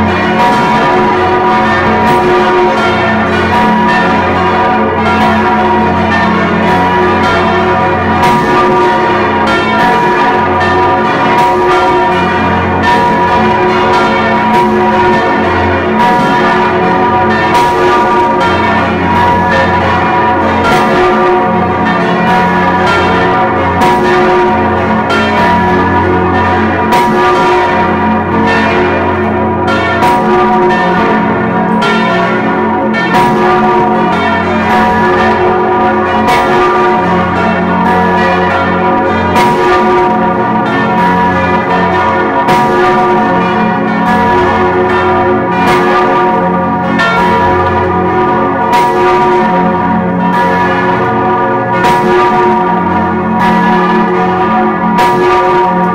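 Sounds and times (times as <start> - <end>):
church bells ringing: 0.0 - 55.9.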